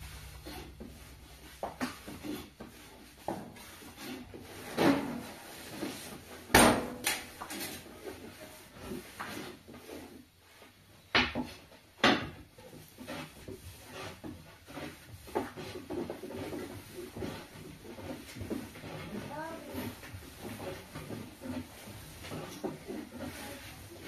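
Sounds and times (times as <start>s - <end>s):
pots and utensils clattering: 3.2s - 9.0s
rustling: 12.6s - 24.0s.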